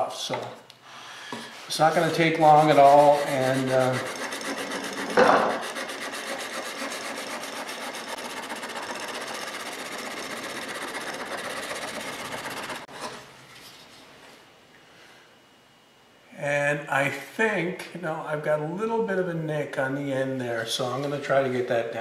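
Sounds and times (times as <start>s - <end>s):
sharp knock: 5.1s - 5.6s.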